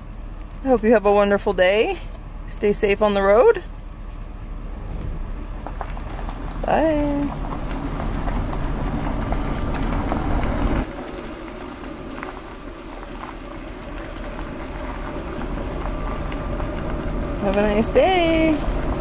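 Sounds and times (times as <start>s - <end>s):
road noise on gravel: 0.0s - 19.0s
van engine rumble: 0.0s - 19.0s.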